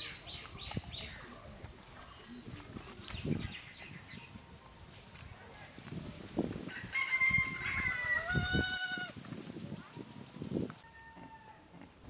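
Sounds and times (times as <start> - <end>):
rooster crowing: 6.7 - 8.8, 10.8 - 11.8.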